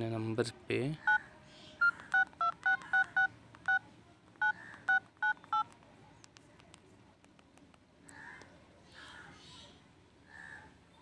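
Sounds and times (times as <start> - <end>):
keypad touch-tone beeps: 1.8 - 3.8, 4.4 - 5.8.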